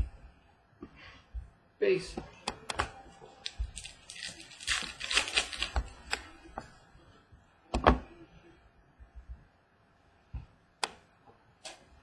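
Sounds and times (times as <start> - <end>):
cards rustling and clicking: 3.4 - 6.3.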